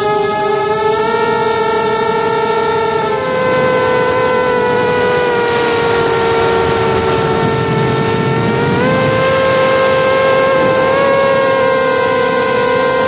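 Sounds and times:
drone motors whining: 0.0 - 13.0
rush of air: 3.3 - 12.4.

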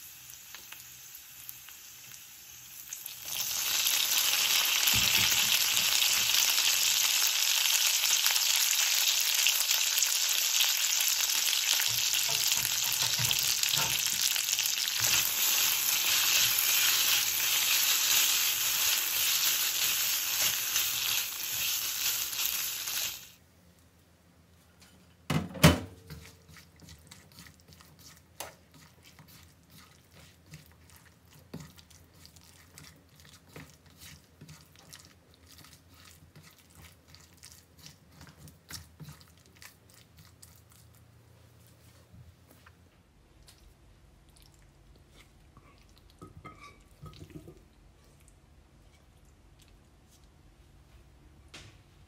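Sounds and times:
pasta sizzling in frying pan: 0.0 - 23.4
spatula stirring clicks and squelches: 26.1 - 41.1.

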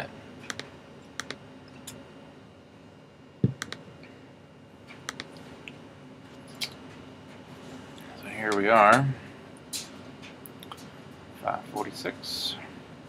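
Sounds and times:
keyboard clicks: 0.5 - 1.4, 3.4 - 3.8, 5.1 - 5.3.

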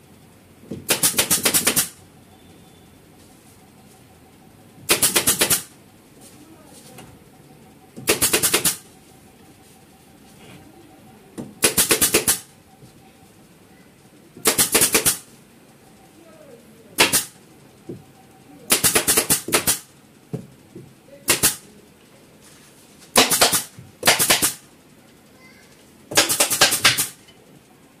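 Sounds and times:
pneumatic staple gun firing: 0.9 - 2.0, 4.9 - 5.7, 8.0 - 8.8, 11.6 - 12.5, 14.4 - 15.2, 17.0 - 17.4, 18.7 - 19.9, 21.3 - 21.6, 23.1 - 24.6, 26.2 - 27.2.

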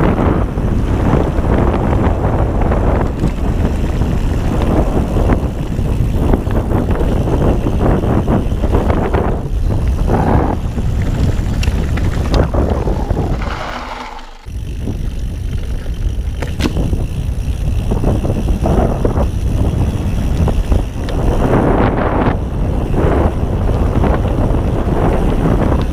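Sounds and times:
bike tyres rumbling on dirt trail: 0.0 - 25.9
wind buffeting microphone: 0.0 - 25.9
bike clicks and knocks: 2.6 - 21.4.

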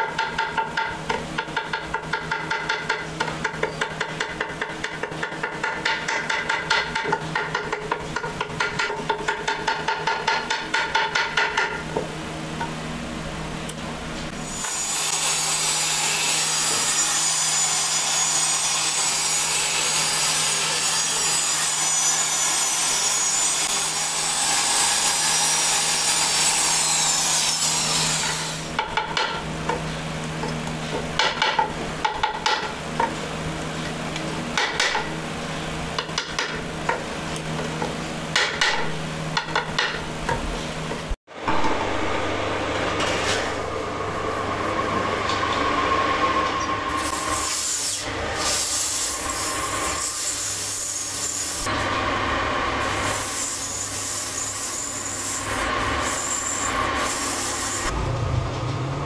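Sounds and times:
low hum: 41.3 - 47.1, 57.9 - 59.0.

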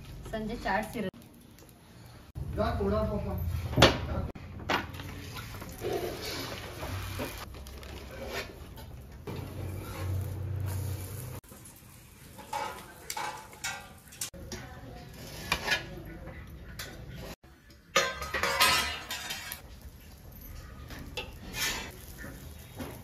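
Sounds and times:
metal spatula scraping iron griddle: 5.7 - 11.4, 12.3 - 14.4, 15.0 - 16.2, 18.0 - 19.6, 21.0 - 23.0.

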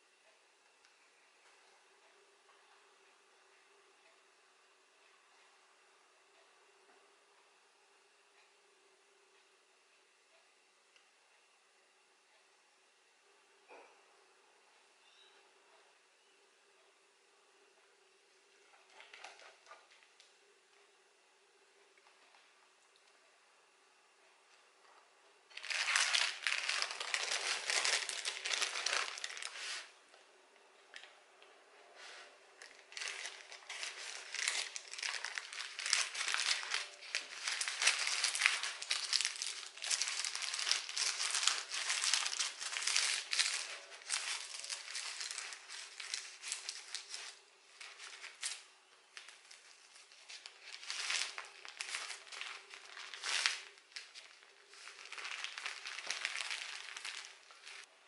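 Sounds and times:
faint steady hum: 0.0 - 58.0
paper and cling film crinkling: 18.7 - 20.1, 25.5 - 30.0, 32.0 - 58.0.

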